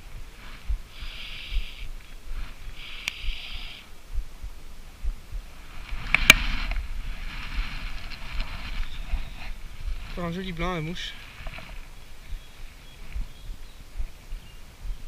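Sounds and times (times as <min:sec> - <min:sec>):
fly line hissing through rod guides: 0:00.4 - 0:03.9.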